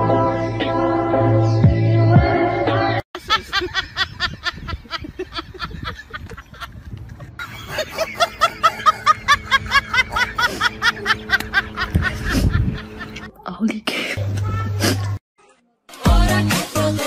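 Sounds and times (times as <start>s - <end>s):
high-pitched giggling laughter: 3.2s - 13.4s
low hum: 6.9s - 13.3s
background music: 15.9s - 17.0s.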